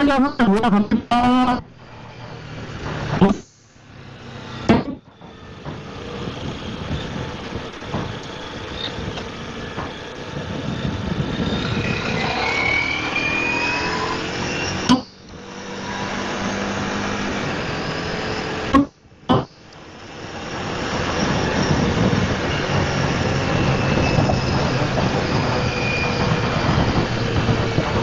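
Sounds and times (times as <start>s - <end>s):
motorcycle engine accelerating: 1.6s - 28.0s
wind rush: 5.4s - 18.6s, 19.9s - 28.0s.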